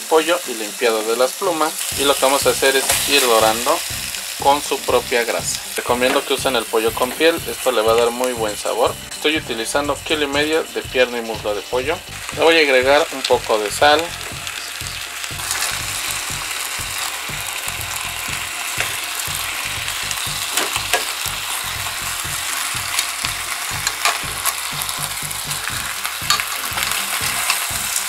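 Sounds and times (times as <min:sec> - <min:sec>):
chicken sizzling in a pot: 0:00.0 - 0:28.0
metal tongs clicking: 0:23.8 - 0:24.6, 0:26.3 - 0:27.7.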